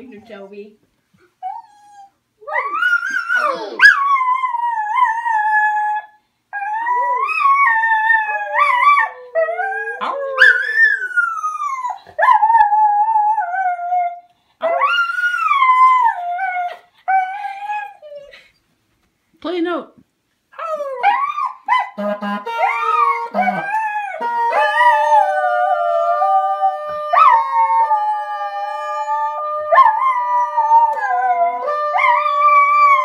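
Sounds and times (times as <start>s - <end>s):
dogs howling: 22.7s - 33.0s.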